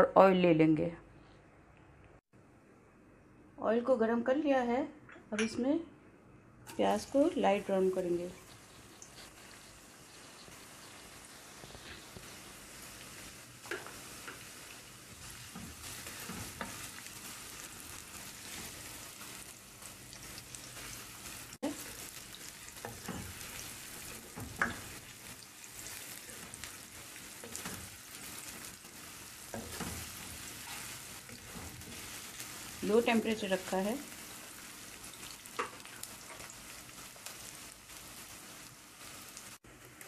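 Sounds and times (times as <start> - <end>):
onions sizzling in hot oil: 6.7 - 40.0
spoon scraping and knocking pan: 13.6 - 14.5, 22.7 - 25.1, 25.8 - 32.7.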